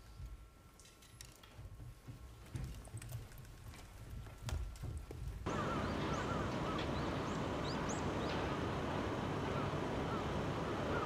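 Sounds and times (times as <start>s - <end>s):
steady city background rush: 5.4s - 11.0s
small birds chirping: 5.5s - 11.0s.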